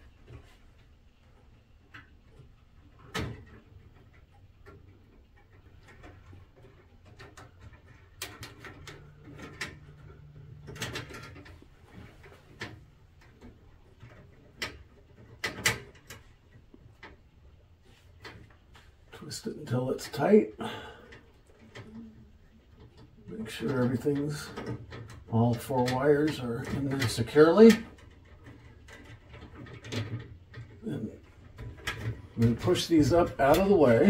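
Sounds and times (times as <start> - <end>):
wires being twisted by hand: 0.0 - 34.0.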